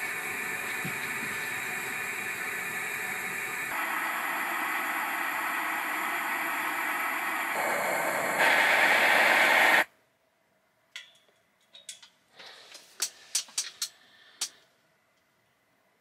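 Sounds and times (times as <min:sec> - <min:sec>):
loud steady hiss: 0:00.0 - 0:09.9.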